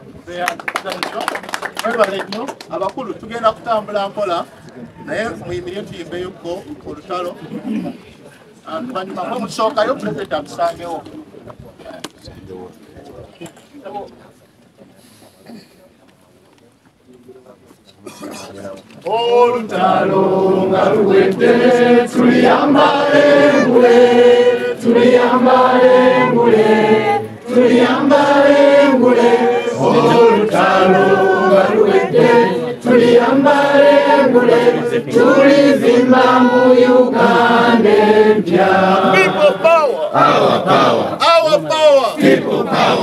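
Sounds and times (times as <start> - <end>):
crowd singing in chorus: 19.2 - 41.2, 42.2 - 43.0.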